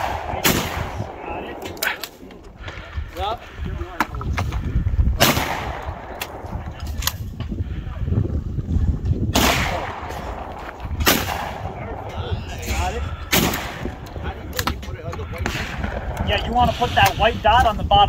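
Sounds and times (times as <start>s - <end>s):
shotgun firing: 0.0s - 2.3s, 5.2s - 6.6s, 9.3s - 12.0s, 13.3s - 13.9s.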